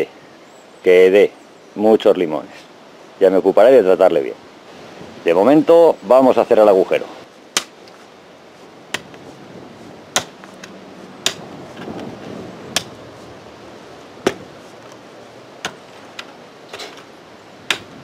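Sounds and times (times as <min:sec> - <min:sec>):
rustling of loosened earth: 0:00.0 - 0:18.0
digging tool chopping into soil: 0:07.5 - 0:08.0, 0:08.9 - 0:09.2, 0:10.1 - 0:11.9, 0:12.7 - 0:13.0, 0:14.2 - 0:14.6, 0:17.6 - 0:18.0.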